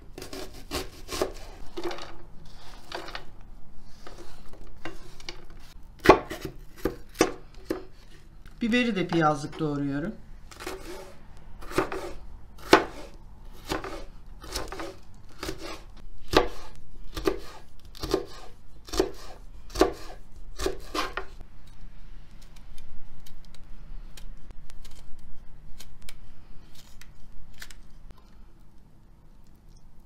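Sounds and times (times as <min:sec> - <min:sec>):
knife slicing pepper on board: 0:00.2 - 0:01.6, 0:10.6 - 0:21.3.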